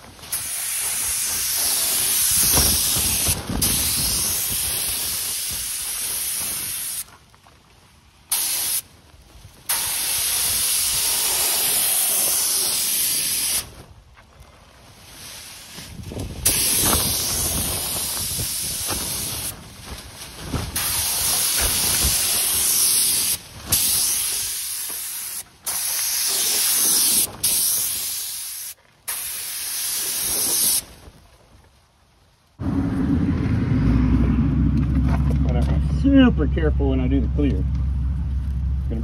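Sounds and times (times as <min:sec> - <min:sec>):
air spray gun hissing: 0:00.3 - 0:07.1, 0:08.3 - 0:08.8, 0:09.7 - 0:13.7, 0:16.4 - 0:19.5, 0:20.8 - 0:30.9.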